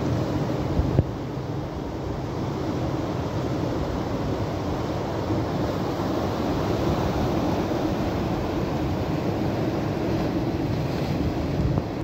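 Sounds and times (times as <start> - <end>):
wind buffeting microphone: 9.9 - 12.0.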